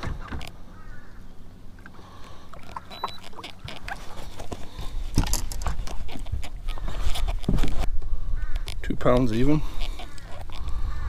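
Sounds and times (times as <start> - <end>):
handling clicks knocks and rustling: 2.7 - 7.9
high beep: 2.9 - 3.2.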